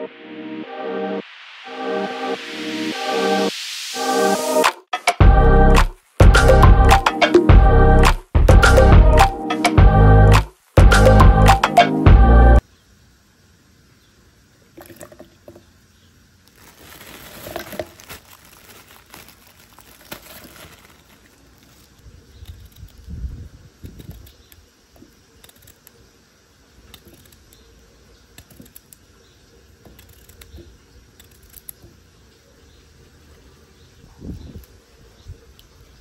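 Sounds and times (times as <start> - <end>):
plastic bag rustling: 16.4 - 22.8.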